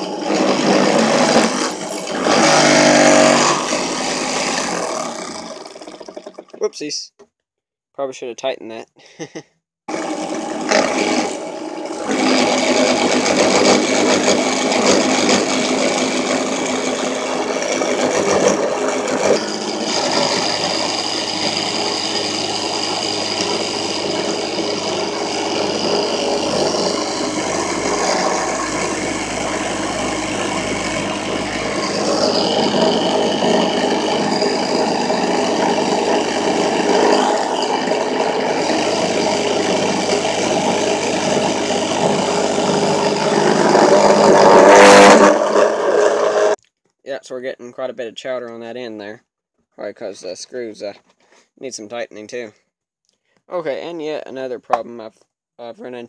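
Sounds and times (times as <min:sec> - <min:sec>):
drill press motor whirring: 0:00.0 - 0:06.6, 0:09.9 - 0:46.6
end mill cutting plastic: 0:00.0 - 0:06.7, 0:09.9 - 0:46.6.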